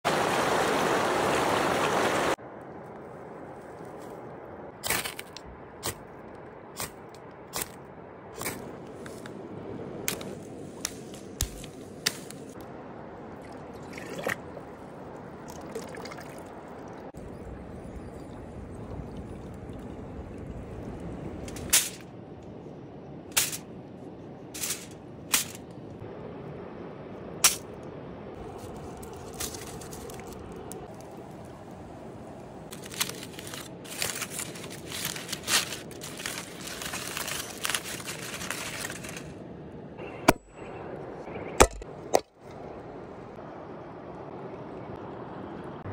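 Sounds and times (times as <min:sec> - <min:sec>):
aluminium foil crinkling: 0:28.6 - 0:31.0, 0:32.7 - 0:39.4.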